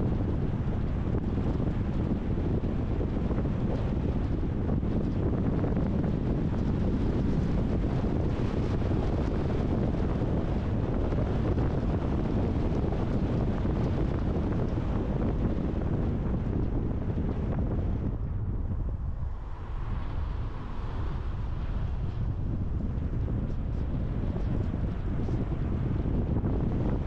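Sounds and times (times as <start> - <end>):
wind buffeting microphone: 0.0 - 27.0
road noise: 0.2 - 27.0.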